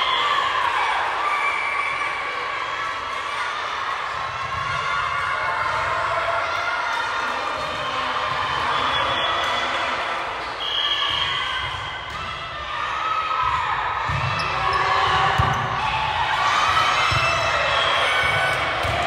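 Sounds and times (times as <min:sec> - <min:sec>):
echoing chatter and shouts: 0:00.0 - 0:19.0
volleyballs thudding: 0:18.5 - 0:19.0.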